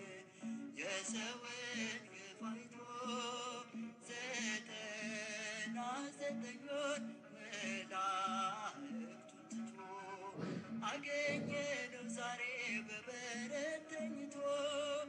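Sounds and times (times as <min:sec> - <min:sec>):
man singing wavering notes: 0:00.0 - 0:15.0
steady low beat: 0:10.4 - 0:11.8.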